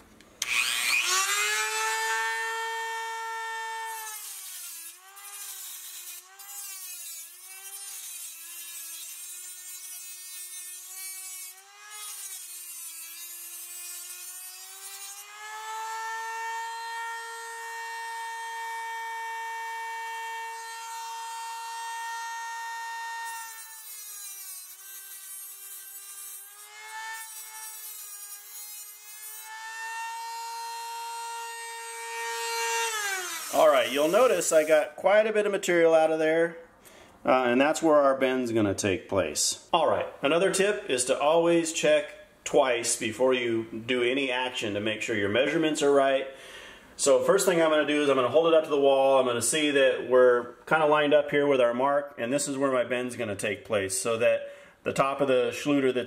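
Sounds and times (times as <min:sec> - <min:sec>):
rotary tool cutting metal: 0:00.4 - 0:34.9.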